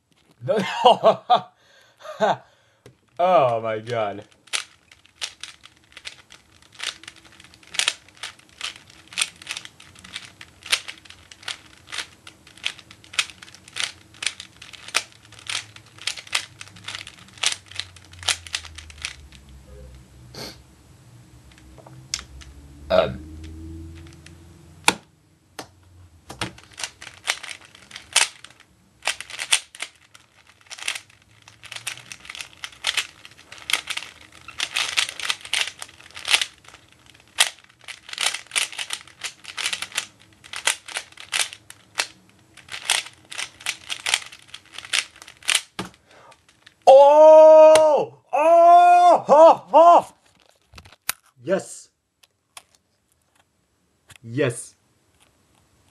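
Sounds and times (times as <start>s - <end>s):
puzzle cube plastic clicks: 2.8s - 19.6s, 26.3s - 46.8s.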